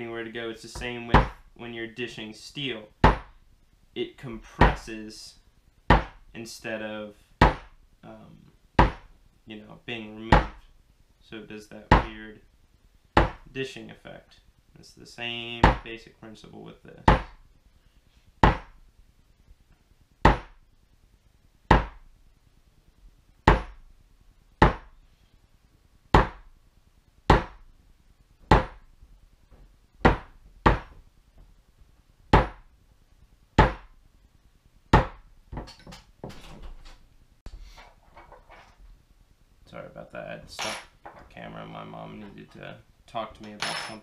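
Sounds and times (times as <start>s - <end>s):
tools clicking and tapping: 35.5s - 36.1s.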